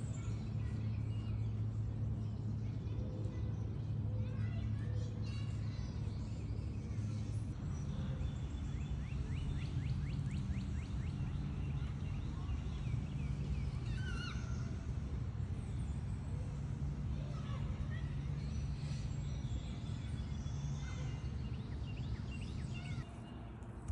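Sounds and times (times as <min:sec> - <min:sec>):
birds calling: 0:00.0 - 0:23.4
steady low rumble: 0:21.2 - 0:23.9.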